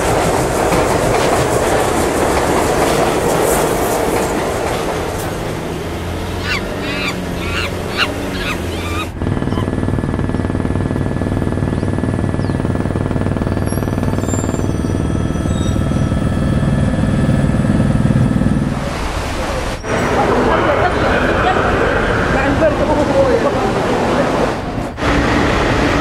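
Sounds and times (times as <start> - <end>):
subway train rushing past: 0.0 - 9.2, 15.2 - 26.0
helicopter drone: 4.0 - 26.0
goose calls: 6.4 - 9.7.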